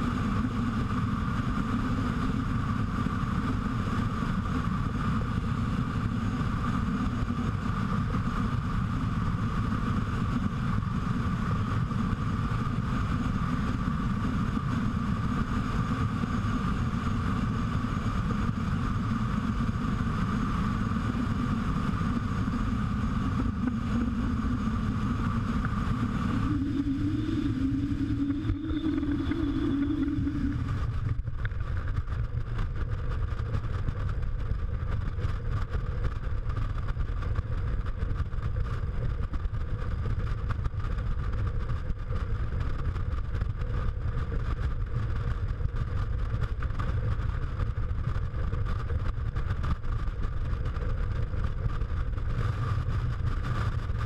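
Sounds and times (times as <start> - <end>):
motorcycle engine rumble: 21.0 - 54.0.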